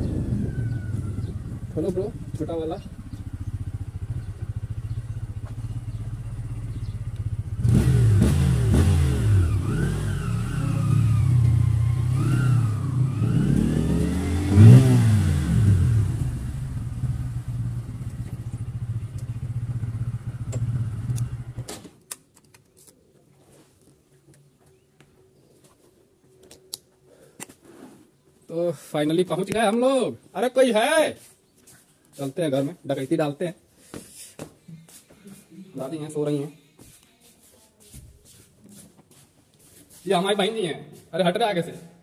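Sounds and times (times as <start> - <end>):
motorcycle engine running: 0.0 - 21.7.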